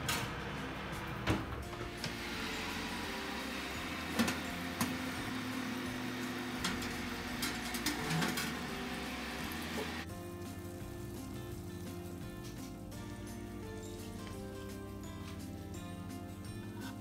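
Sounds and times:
oven fan whirring: 0.0 - 11.2.

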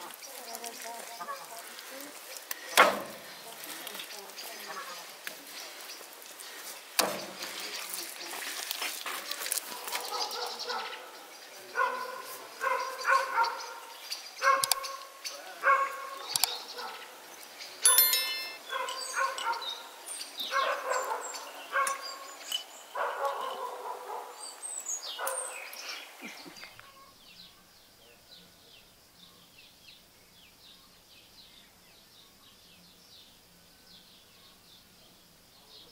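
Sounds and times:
small birds chirping: 0.0 - 35.9
dog barking: 9.7 - 15.0, 15.6 - 17.1, 18.7 - 19.8, 20.5 - 22.1, 23.0 - 24.4, 25.2 - 25.6.

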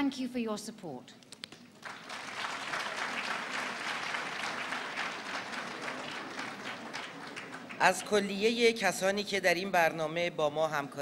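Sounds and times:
audience applauding: 1.7 - 8.6.

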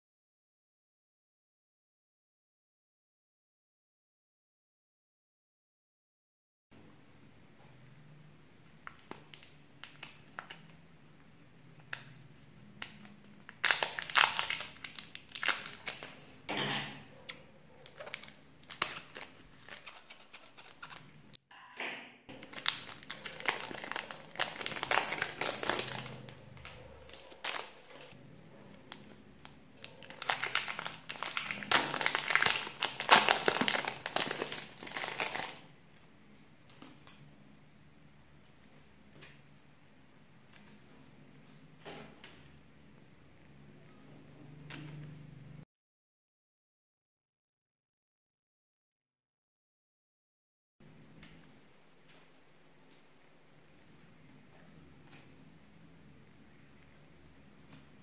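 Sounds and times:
plastic bag crinkling: 9.0 - 16.3, 17.8 - 21.2, 22.3 - 28.2, 28.8 - 35.7.

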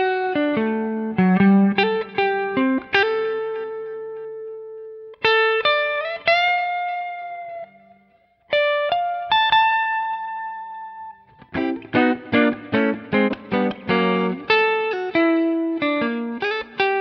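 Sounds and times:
electric guitar melody: 0.0 - 17.0.

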